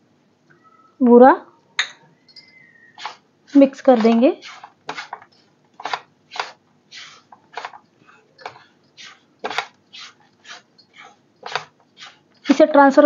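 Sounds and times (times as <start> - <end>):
spatula scraping in a pan: 2.9 - 13.0.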